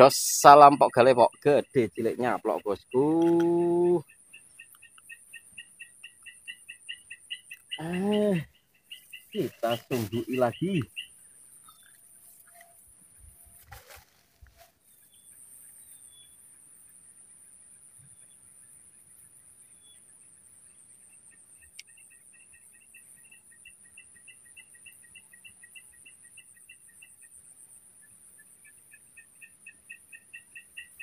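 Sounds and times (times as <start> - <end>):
high-pitched insect drone: 0.0 - 13.0.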